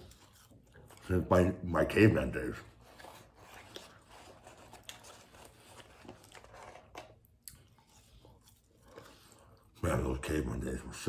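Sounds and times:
man chewing with crunches: 0:00.0 - 0:01.3, 0:02.7 - 0:09.8.

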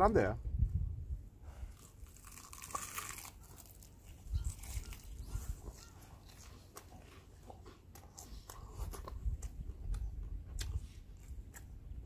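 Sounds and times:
chewing with crunches: 0:01.5 - 0:12.0
wet mouth clicks: 0:07.9 - 0:10.8.

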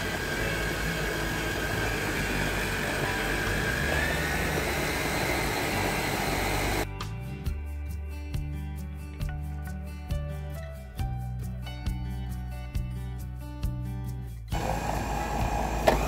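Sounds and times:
blade grinding seeds: 0:00.0 - 0:06.8
food processor whining: 0:00.0 - 0:06.9, 0:14.5 - 0:16.0.

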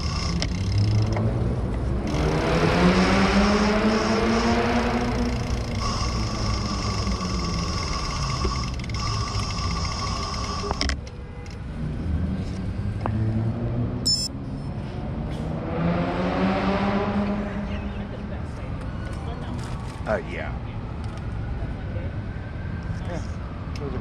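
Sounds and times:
bicycle road rumble: 0:00.0 - 0:15.6
wind: 0:00.0 - 0:24.0
steady high whine: 0:01.8 - 0:11.0.

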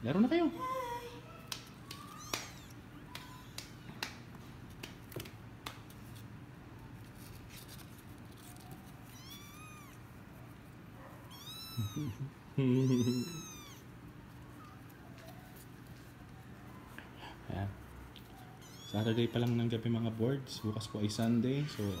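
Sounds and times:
kittens mewing: 0:00.6 - 0:04.1, 0:08.6 - 0:10.3, 0:11.1 - 0:15.8, 0:16.5 - 0:19.8, 0:20.4 - 0:22.0
paws scratching cardboard box: 0:06.9 - 0:11.7.

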